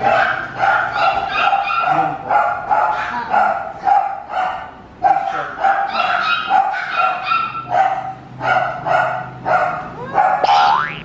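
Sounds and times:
dog barking high-pitched: 0.0 - 10.8.

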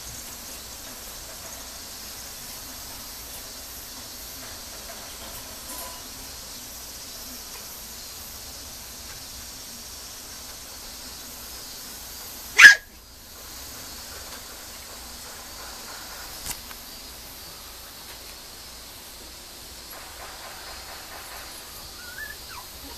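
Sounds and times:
faint steady hiss: 0.0 - 22.9
puppy yipping: 12.6 - 12.9, 22.0 - 22.9.

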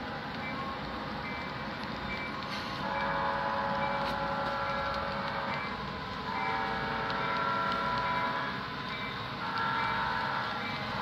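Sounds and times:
model train running noise: 0.0 - 11.0
model train horn blasts: 2.8 - 5.5, 6.3 - 8.7.

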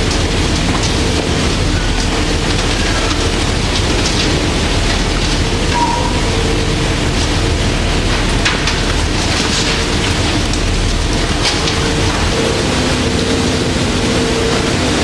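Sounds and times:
ship machinery hum: 0.0 - 15.0.

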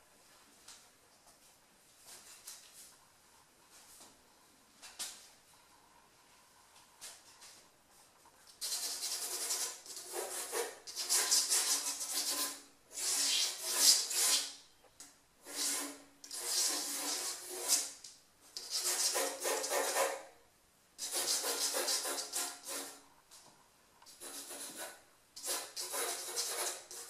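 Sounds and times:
pencil scratching on paper: 8.6 - 14.5, 15.4 - 18.0, 18.6 - 20.2, 21.0 - 23.0, 24.1 - 27.0.

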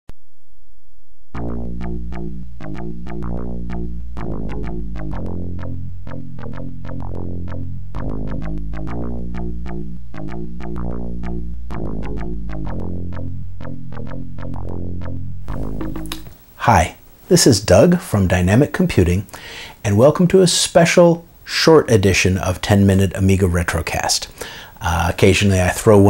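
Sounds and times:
synthesizer music: 1.4 - 16.3.

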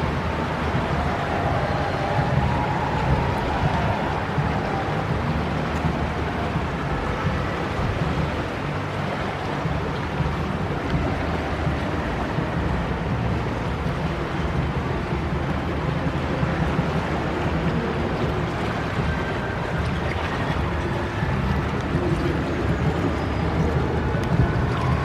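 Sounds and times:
river low rumble: 0.0 - 25.0
rushing water: 0.0 - 25.0.

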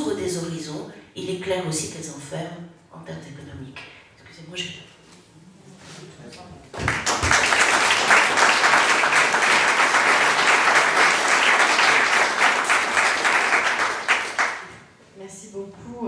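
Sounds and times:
audience applauding: 6.8 - 14.8.

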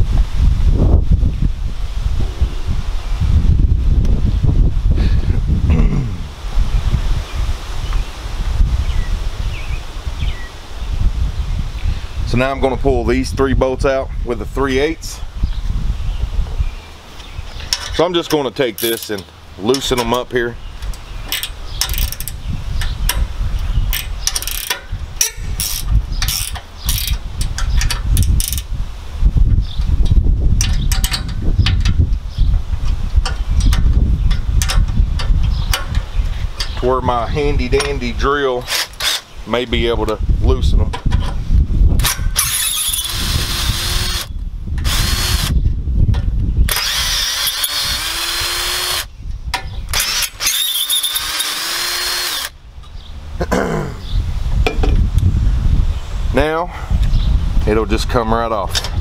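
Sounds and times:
steady low rumble: 0.0 - 18.6
ratcheting wrench clicking: 18.8 - 20.2, 21.3 - 23.3, 23.9 - 28.7, 42.0 - 45.5, 46.7 - 49.1, 49.9 - 52.6
cordless drill motor whine: 42.0 - 45.6, 46.7 - 49.1, 49.9 - 52.6.

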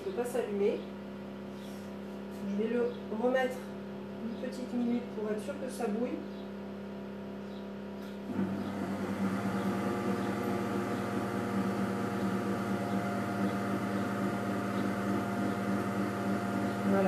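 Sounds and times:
microwave oven humming: 6.3 - 17.0.

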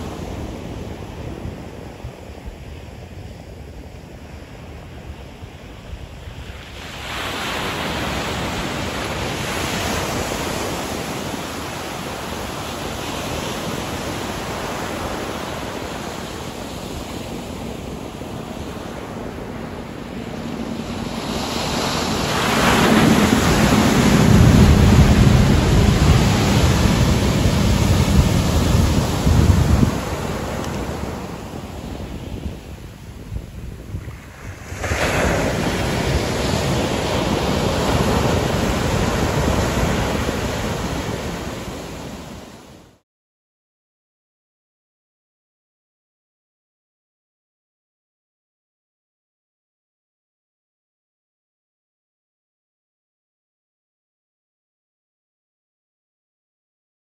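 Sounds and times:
ocean surf breaking on beach: 0.0 - 43.0.

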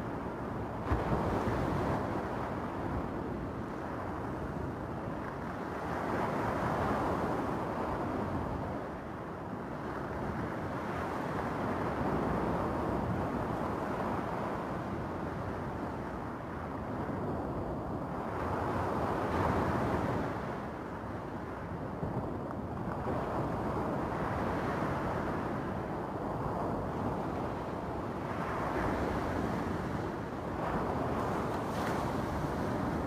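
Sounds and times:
surf washing over cobble beach: 23.0 - 33.0.

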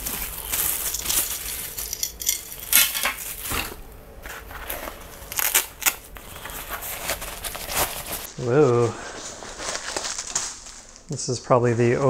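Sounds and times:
rustling of fabric bag: 6.3 - 11.0.

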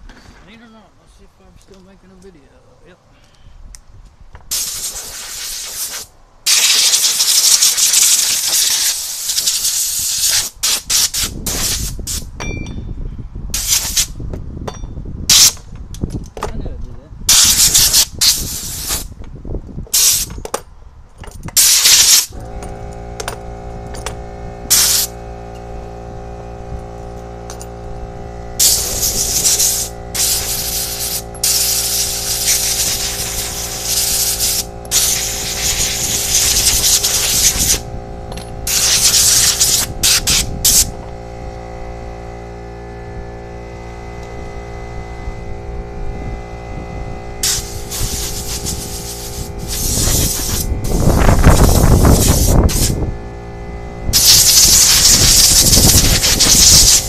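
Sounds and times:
compressed air hissing: 4.5 - 12.3, 13.5 - 14.2, 17.3 - 19.1, 19.9 - 20.3, 21.6 - 22.4, 24.7 - 25.2, 28.6 - 37.9, 38.6 - 40.9, 47.4 - 53.1, 54.1 - 57.0
air compressor humming: 21.6 - 57.0.

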